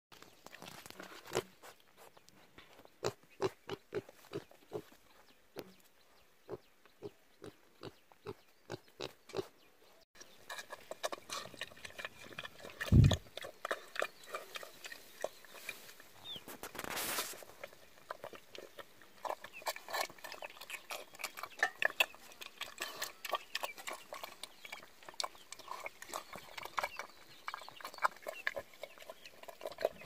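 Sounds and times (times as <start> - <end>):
piglet chewing and smacking: 10.2 - 30.0.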